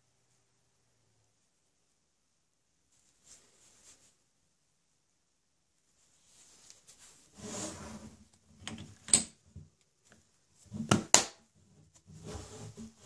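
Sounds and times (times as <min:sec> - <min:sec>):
fabric rustling and rubbing: 0:02.9 - 0:04.3, 0:05.9 - 0:08.3, 0:11.6 - 0:13.0.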